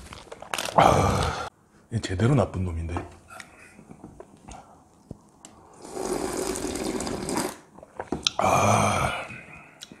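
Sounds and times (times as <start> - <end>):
person slurping noodles: 5.8 - 8.8.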